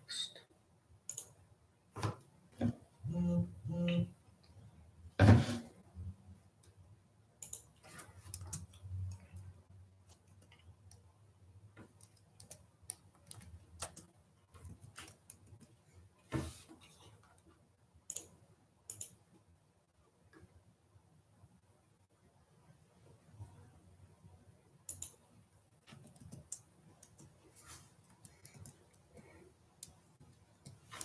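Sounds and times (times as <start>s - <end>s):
mouse and keyboard clicks: 1.1s - 1.4s, 7.4s - 9.3s, 18.9s - 19.2s, 24.9s - 25.2s.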